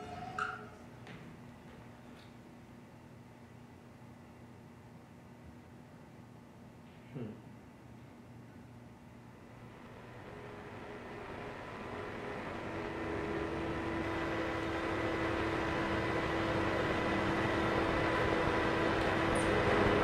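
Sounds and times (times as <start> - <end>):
faint steady tones: 9.4 - 20.0.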